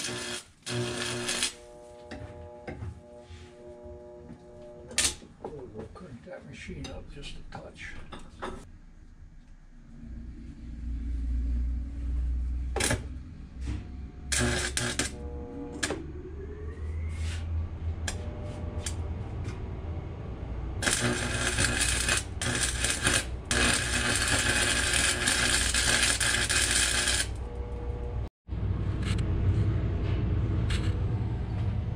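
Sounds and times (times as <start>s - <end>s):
welding arc crackling: 0.0s - 4.2s, 12.8s - 13.1s, 14.3s - 15.2s, 20.8s - 27.9s
low hum: 0.0s - 31.9s.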